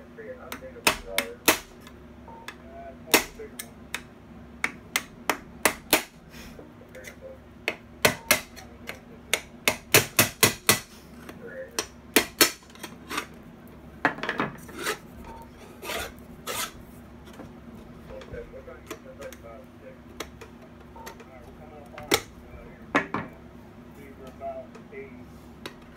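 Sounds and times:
scraping on metal: 14.5 - 16.8.

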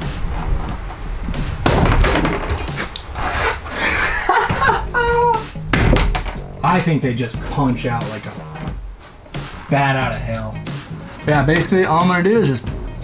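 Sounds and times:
sharp knock: 5.7 - 6.4
plastic rivets knocking and rattling: 5.8 - 6.5.

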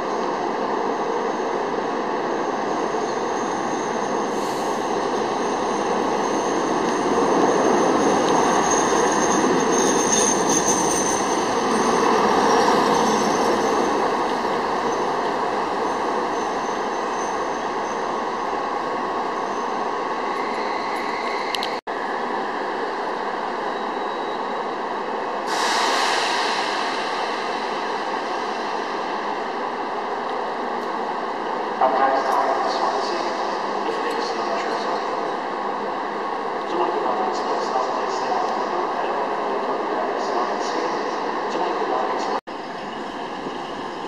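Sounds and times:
high wheel squeal: 2.5 - 14.1.

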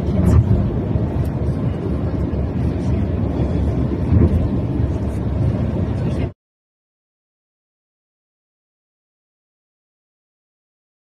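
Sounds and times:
car interior road rumble: 0.0 - 6.3.

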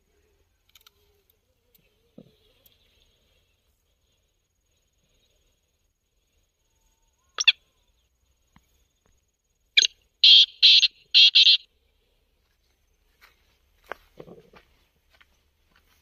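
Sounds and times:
bird call from speaker: 9.8 - 11.7.

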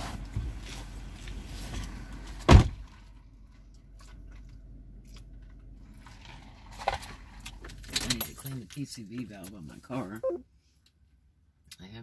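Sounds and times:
car door slamming: 2.4 - 2.8.

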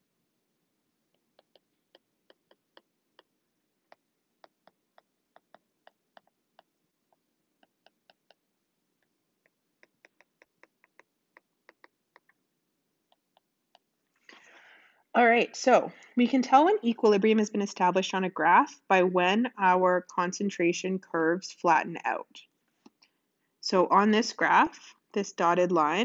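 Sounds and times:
stylus tapping tablet screen: 1.1 - 12.4, 13.0 - 14.4.

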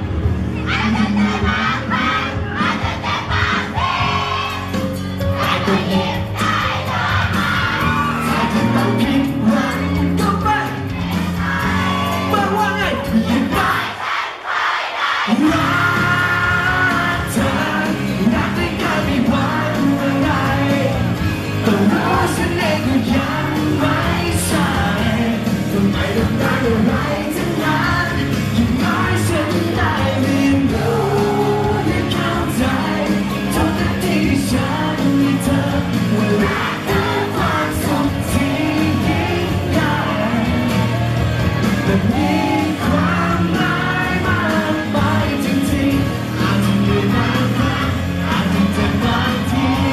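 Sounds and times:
loud amplified music: 0.0 - 49.9
man singing into microphone: 8.1 - 10.9, 11.9 - 13.9, 15.3 - 41.1, 41.8 - 49.9.

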